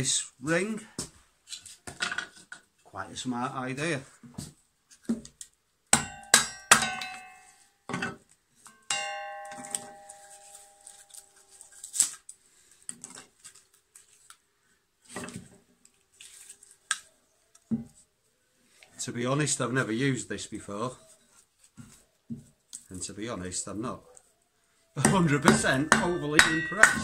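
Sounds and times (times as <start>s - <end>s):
sharp knocks of wood on iron: 5.9s - 7.2s, 25.0s - 27.0s
iron frame ringing: 6.0s - 7.7s, 8.7s - 11.4s, 25.0s - 27.0s.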